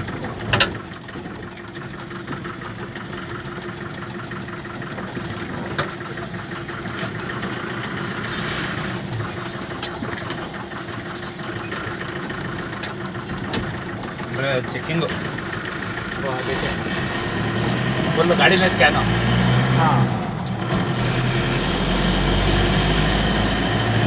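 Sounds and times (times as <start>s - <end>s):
road noise: 0.0s - 24.0s
vehicle engine hum: 0.0s - 24.0s.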